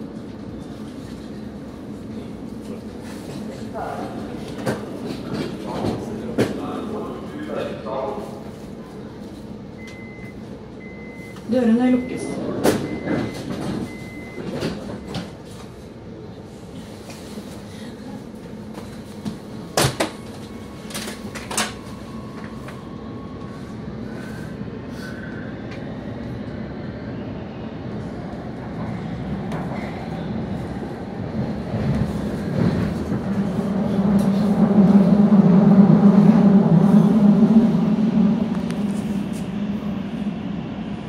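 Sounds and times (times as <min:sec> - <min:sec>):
metro train running: 0:00.0 - 0:41.0.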